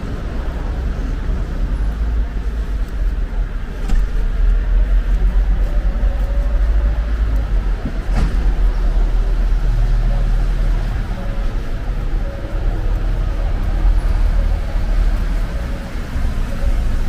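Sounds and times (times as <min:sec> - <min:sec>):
city street traffic rumble: 0:00.0 - 0:17.0.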